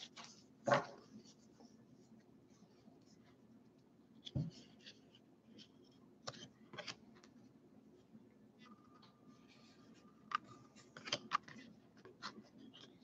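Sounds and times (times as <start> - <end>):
cards rustling: 10.3 - 13.0.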